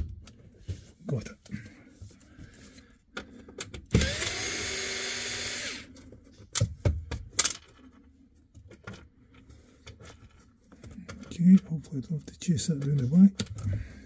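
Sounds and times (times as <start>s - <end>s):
cordless screwdriver whining: 3.9s - 6.0s.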